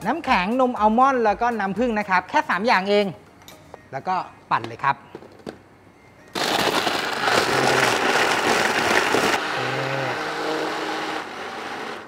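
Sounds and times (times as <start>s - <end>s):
blender crushing ice: 6.4s - 12.0s.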